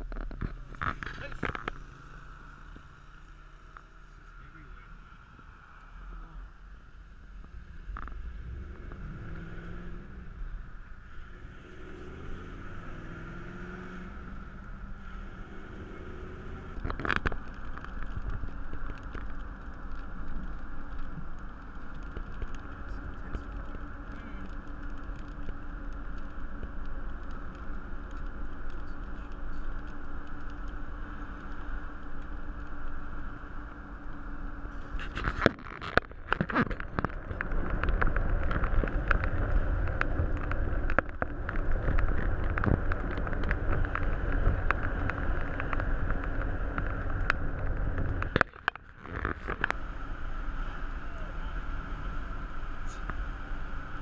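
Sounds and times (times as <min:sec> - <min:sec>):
car road and engine noise: 0:00.0 - 0:54.0
sharp clicks and knocks: 0:34.9 - 0:49.8.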